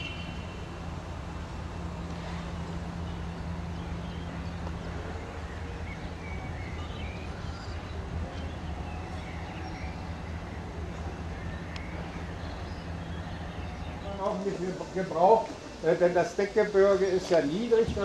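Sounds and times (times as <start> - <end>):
bird chirps: 0.0 - 0.7, 2.6 - 15.8
low machine hum: 0.0 - 18.0.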